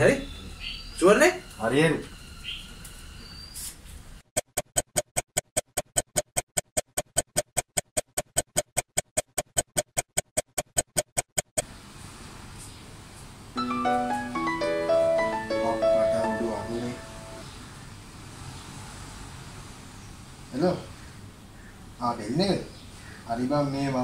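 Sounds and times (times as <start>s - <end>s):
rapid clock ticks: 4.4s - 11.6s.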